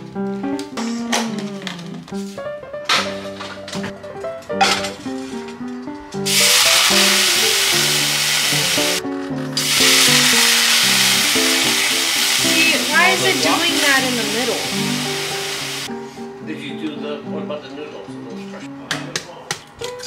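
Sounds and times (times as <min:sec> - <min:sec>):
gentle background music: 0:00.0 - 0:20.0
liquid sizzling in hot pan: 0:06.3 - 0:09.0, 0:09.6 - 0:15.9.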